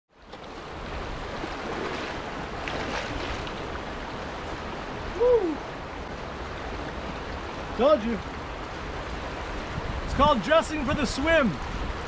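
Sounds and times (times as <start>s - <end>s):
river rushing over rapids: 0.4s - 12.0s
wind buffeting microphone: 8.4s - 12.0s.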